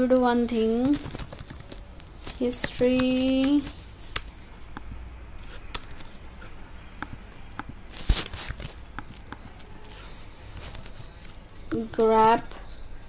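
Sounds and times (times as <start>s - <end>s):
keyboard keys clicking: 0.1s - 4.4s, 10.5s - 12.9s.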